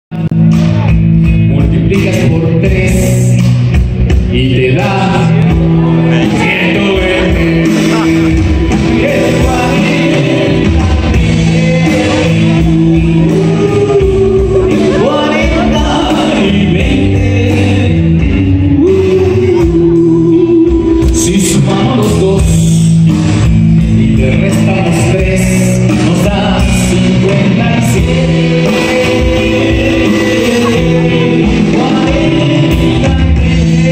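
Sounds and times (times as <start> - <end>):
drum kit: 0.1 - 33.9
electric guitar: 0.1 - 33.9
man singing into a microphone: 0.1 - 33.9.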